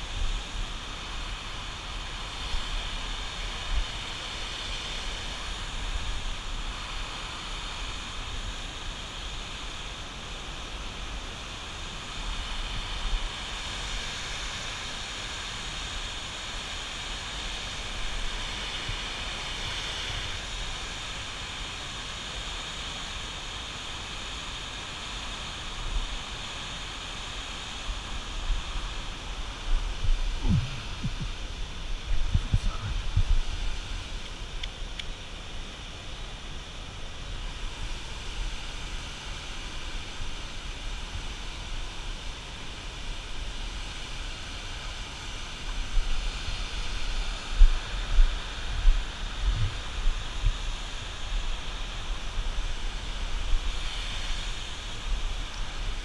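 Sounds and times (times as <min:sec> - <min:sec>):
water rushing through dam: 0:00.0 - 0:56.0
wind buffeting microphone: 0:29.6 - 0:33.7, 0:46.9 - 0:51.2.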